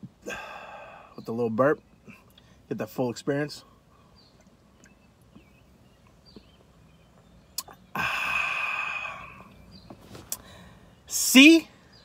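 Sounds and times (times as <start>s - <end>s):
breathy aah: 0.2s - 1.2s, 7.9s - 9.5s.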